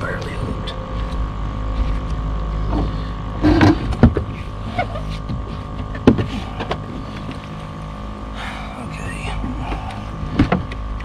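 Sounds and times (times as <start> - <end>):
small electric motor humming: 0.0 - 11.0
knocks and thumps on boat: 1.8 - 7.6, 9.3 - 11.0.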